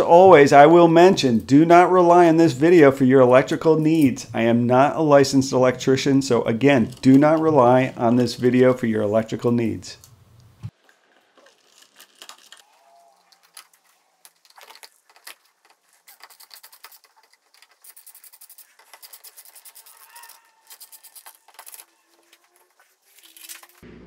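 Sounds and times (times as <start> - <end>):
screwdriver scrapes and clicks: 13.4 - 23.8.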